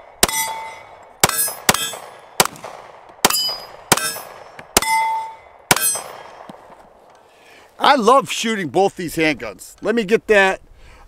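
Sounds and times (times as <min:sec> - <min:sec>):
pistol shots: 0:00.0 - 0:06.7
steel target clanging: 0:00.2 - 0:02.2, 0:03.2 - 0:06.4.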